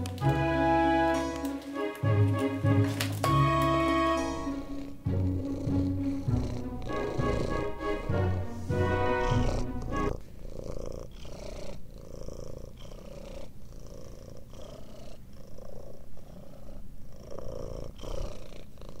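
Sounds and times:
cat purring: 0:03.8 - 0:19.0.

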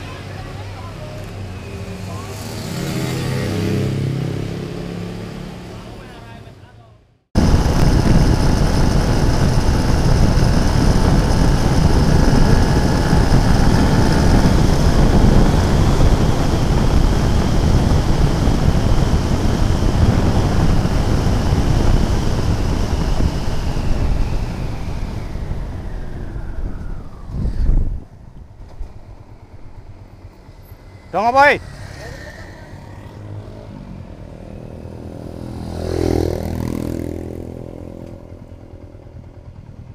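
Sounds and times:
wind rushing over microphone: 0:07.4 - 0:30.3
motorcycle engine running: 0:07.4 - 0:31.0, 0:31.6 - 0:39.9.

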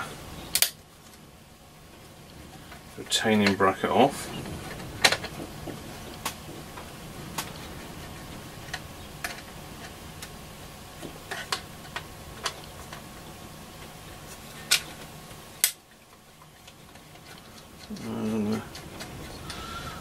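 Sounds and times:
hand tools clicking on metal: 0:16.6 - 0:19.6.

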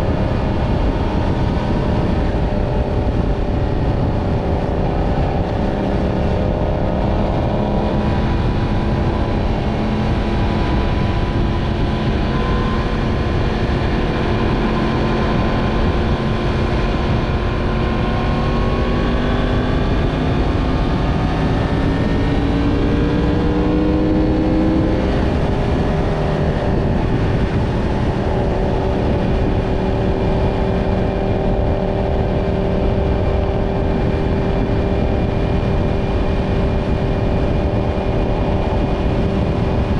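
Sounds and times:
motorcycle engine running: 0:00.0 - 0:39.9
steady rushing noise: 0:00.0 - 0:39.9.

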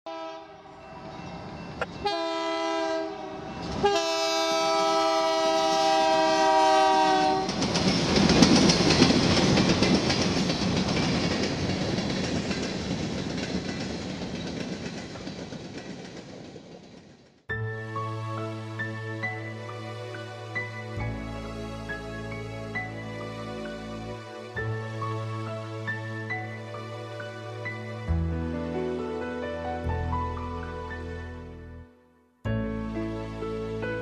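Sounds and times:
train horn blasts: 0:00.1 - 0:00.9, 0:01.9 - 0:07.6
train rumbling past: 0:00.1 - 0:31.2.

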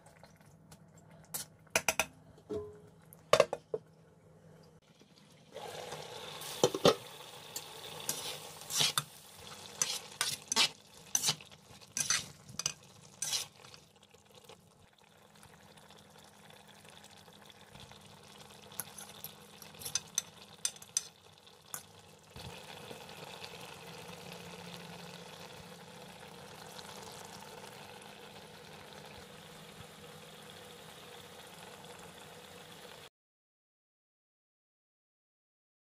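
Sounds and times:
curry simmering sizzle: 0:04.8 - 0:33.1
metal utensils clinking on pot: 0:09.7 - 0:13.5, 0:18.7 - 0:22.0.

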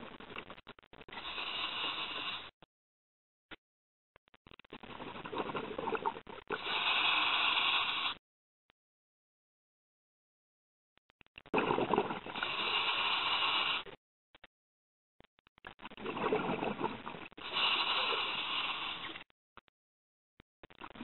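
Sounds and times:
diver breathing through regulator: 0:01.1 - 0:02.5, 0:06.5 - 0:08.2, 0:11.6 - 0:13.9, 0:16.1 - 0:19.2.

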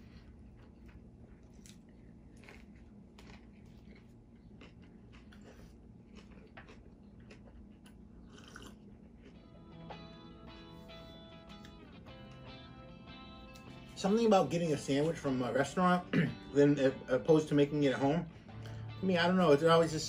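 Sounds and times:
person chewing: 0:00.0 - 0:12.5
low room hum: 0:00.0 - 0:20.0.

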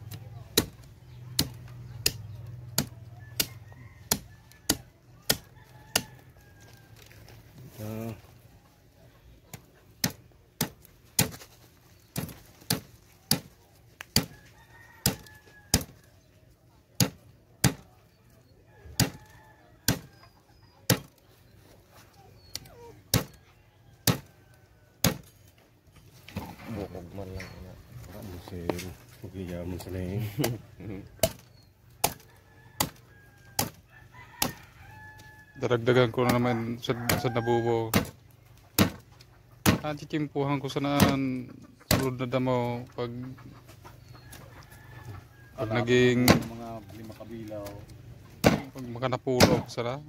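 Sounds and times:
knife chopping fish on wood: 0:00.6 - 0:06.1, 0:38.8 - 0:39.0, 0:48.4 - 0:48.7.

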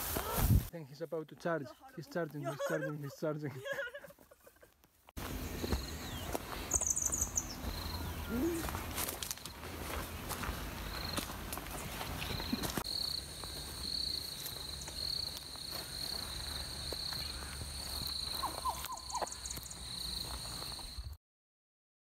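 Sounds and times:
insects trilling: 0:05.2 - 0:21.1
short insect chirps: 0:05.4 - 0:08.1.

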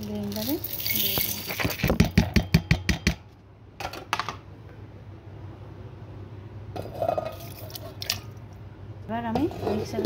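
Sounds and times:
steel jar clinks and knocks: 0:00.3 - 0:02.8.

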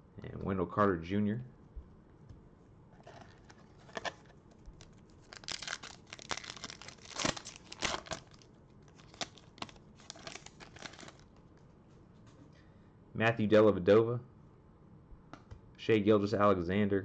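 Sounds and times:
foil pack tearing and crinkling: 0:05.2 - 0:11.2.

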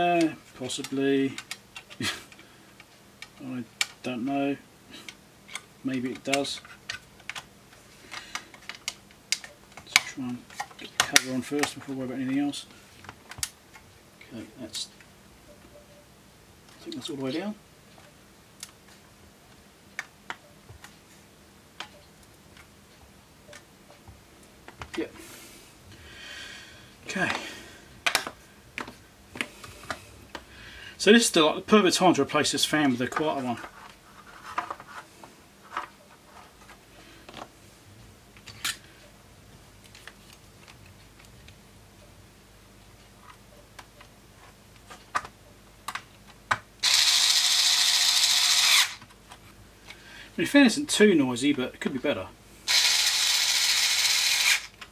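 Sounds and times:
cordless electric screwdriver running: 0:46.8 - 0:49.0, 0:52.7 - 0:54.8.

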